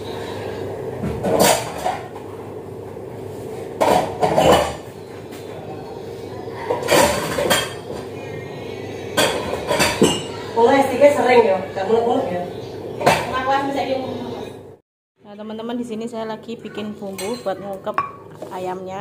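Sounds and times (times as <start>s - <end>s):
dishes and pots clattering: 0.1s - 2.2s, 3.8s - 5.5s, 6.6s - 8.1s, 9.1s - 10.8s, 13.0s - 13.5s, 16.7s - 18.5s.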